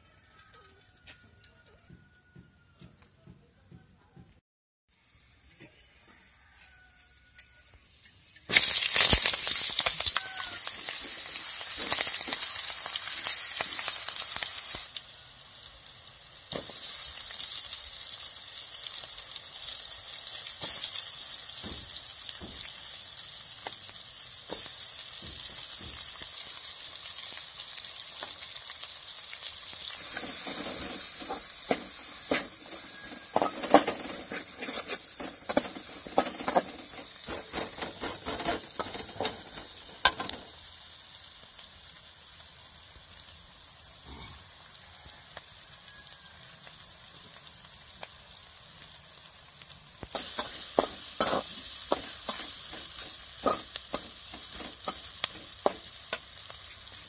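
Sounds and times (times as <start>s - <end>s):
hot oil sizzling: 4.9s - 57.0s
spatula scraping a metal pan: 30.0s - 40.4s, 50.2s - 56.2s.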